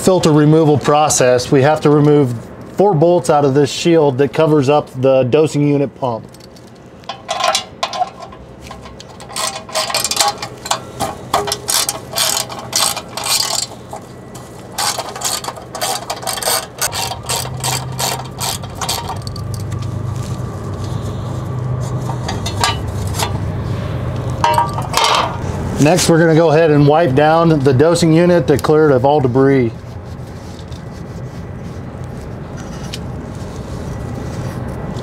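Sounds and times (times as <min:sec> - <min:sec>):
low steady hum: 0:00.0 - 0:35.0
hand ratchet clicking: 0:06.3 - 0:19.8.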